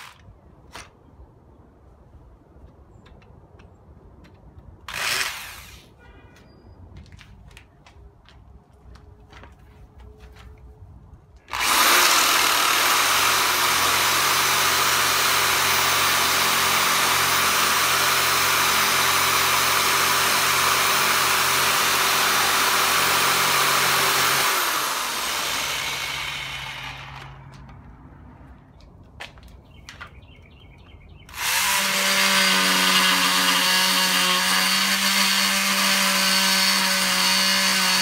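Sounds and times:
electric power saw cutting wood: 4.9s - 5.8s, 11.5s - 27.6s, 31.3s - 38.0s.

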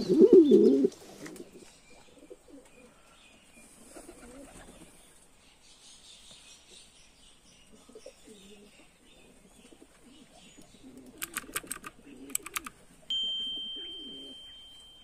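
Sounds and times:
pigeons cooing: 0.0s - 5.0s, 7.7s - 13.1s.

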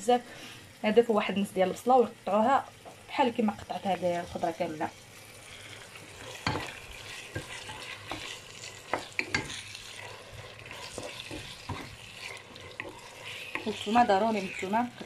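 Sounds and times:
chicken sizzling in hot oil: 0.0s - 15.0s
wooden spoon knocking a pan: 6.4s - 9.6s.

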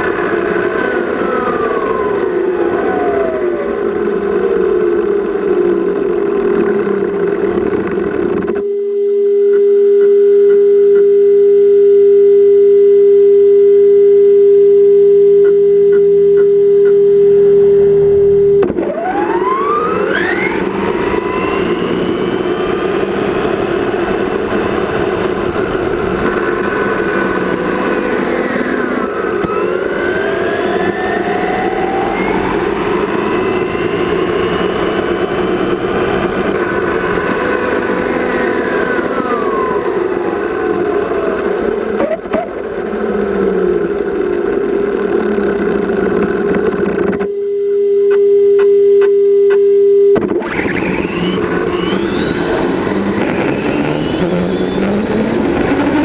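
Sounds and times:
road noise: 0.0s - 8.6s, 16.7s - 47.1s, 50.4s - 56.0s
toy truck electric motor whining: 19.0s - 23.7s, 50.4s - 56.0s.

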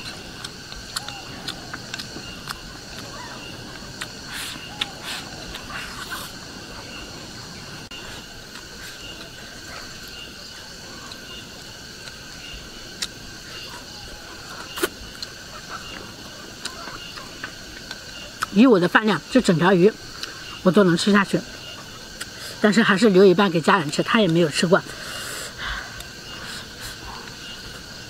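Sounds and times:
insect chorus chirring: 0.0s - 28.0s
chopsticks clicking against bowl: 0.4s - 3.0s.

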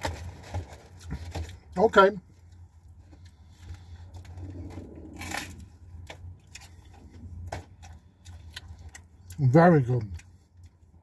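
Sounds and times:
steady low hum: 0.0s - 11.0s
person chewing crunchy crust: 2.4s - 11.0s.

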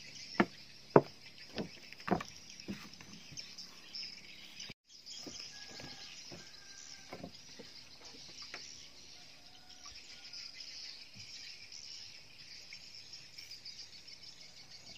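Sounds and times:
knocks on wooden planks: 0.4s - 3.4s, 5.2s - 8.6s.

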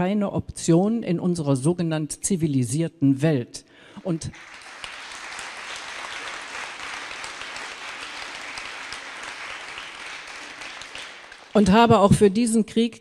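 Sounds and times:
audience applauding: 4.0s - 11.8s.

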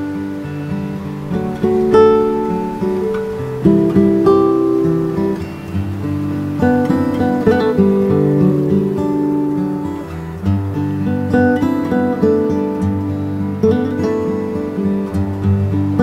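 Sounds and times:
acoustic guitar chords: 0.0s - 16.0s.

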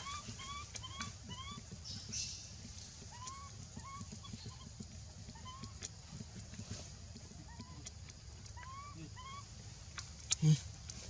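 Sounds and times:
baby monkey squeaking: 0.0s - 2.3s, 3.1s - 4.7s, 8.6s - 9.5s.

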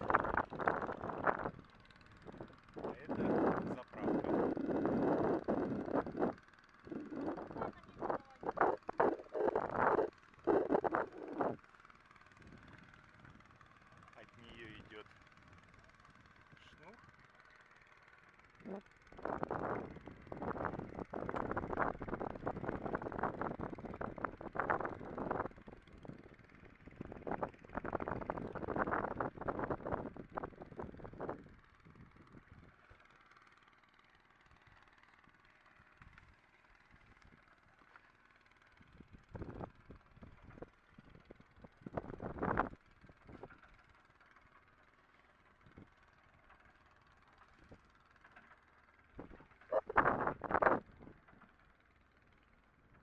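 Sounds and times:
wind buffeting microphone: 2.2s - 11.6s, 19.2s - 26.3s, 26.9s - 32.6s.

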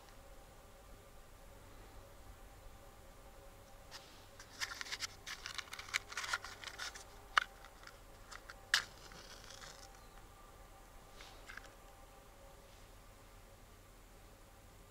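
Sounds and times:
rustling and crackling of handled objects: 3.7s - 10.4s, 11.0s - 12.0s.

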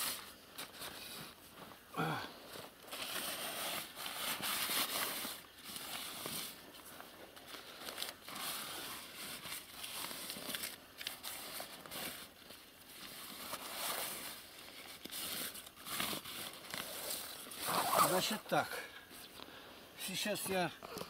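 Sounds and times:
paper rubbing on wet rubber: 16.8s - 18.5s.

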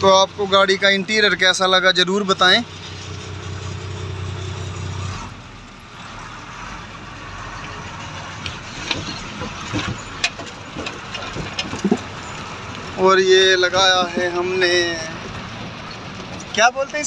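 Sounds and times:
truck engine idling: 0.0s - 17.0s
light clicks and knocks: 8.4s - 12.8s.

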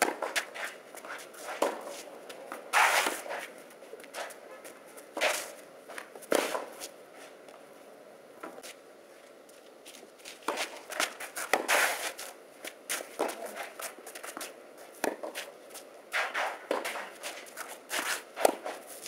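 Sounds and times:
racquets hitting tennis ball: 0.0s - 3.3s, 10.3s - 15.5s, 16.1s - 18.8s
footsteps and shoe scuffs on clay: 9.5s - 19.0s.

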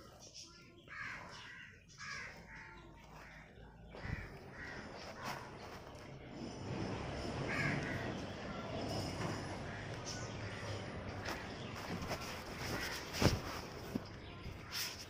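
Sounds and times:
crows cawing: 0.9s - 5.6s, 7.4s - 8.7s, 12.5s - 13.4s.

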